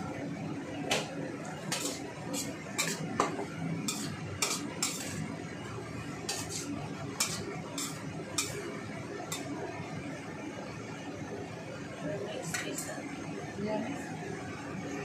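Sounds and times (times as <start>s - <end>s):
low sizzle: 0.0s - 15.0s
metal spatula scraping a wok: 1.6s - 5.4s, 6.2s - 8.7s.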